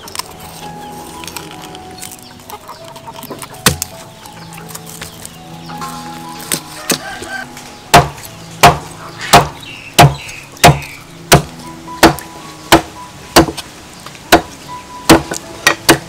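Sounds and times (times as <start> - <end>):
cleaver chopping on wooden block: 3.2 - 3.9, 7.9 - 13.6, 14.3 - 14.5, 15.1 - 16.0.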